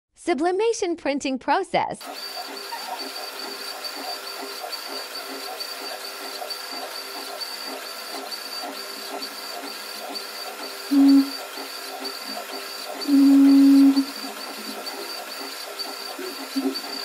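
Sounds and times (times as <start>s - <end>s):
machine hissing and pulsing: 2.0s - 17.0s
loud low beep: 10.9s - 11.3s, 13.0s - 14.1s.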